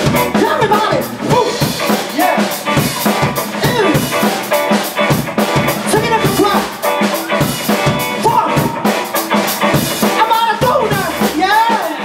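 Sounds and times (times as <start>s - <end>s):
man singing lead vocals: 0.0s - 2.8s, 3.5s - 4.4s, 5.8s - 6.9s, 8.2s - 9.0s, 10.0s - 12.0s
live rock band playing: 0.0s - 12.0s.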